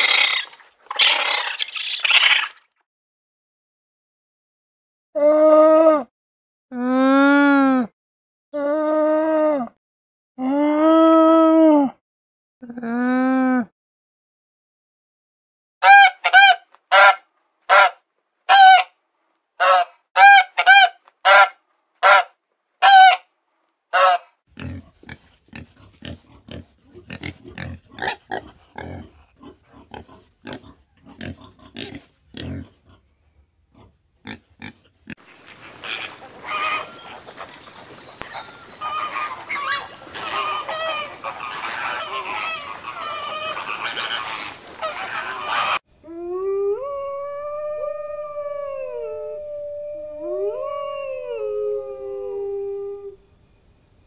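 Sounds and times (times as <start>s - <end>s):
swan honking: 15.8s - 18.9s, 19.6s - 23.2s, 23.9s - 24.3s, 35.5s - 37.6s, 38.2s - 45.8s
warthog grunting and snuffling: 24.5s - 33.1s
jumble of animal calls: 35.4s - 45.8s.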